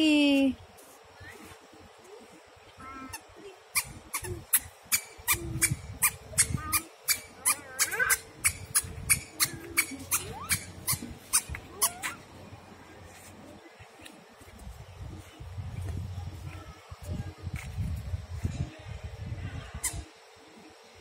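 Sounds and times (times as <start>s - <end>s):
short high squeaks: 3.1s - 12.2s.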